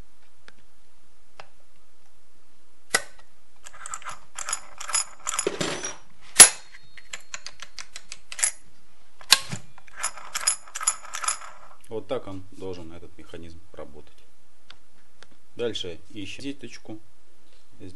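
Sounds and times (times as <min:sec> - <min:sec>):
sharp metallic snap: 0:02.9 - 0:03.2, 0:06.4 - 0:08.6
small metallic clicks and rattles: 0:03.6 - 0:08.6, 0:09.3 - 0:11.8.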